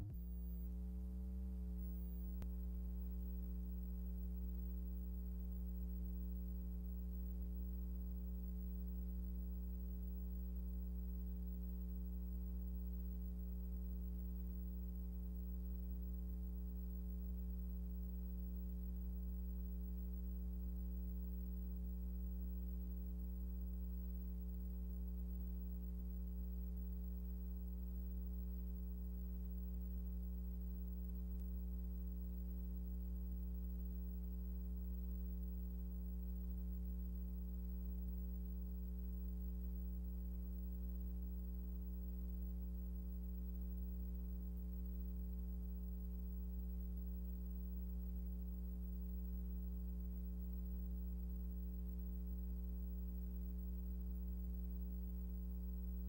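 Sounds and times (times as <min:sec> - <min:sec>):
low electrical hum: 0:00.0 - 0:56.0.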